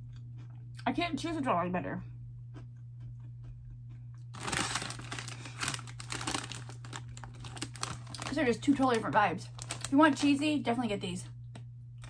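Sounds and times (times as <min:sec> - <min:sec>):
snack bag crinkling: 0:04.2 - 0:10.5.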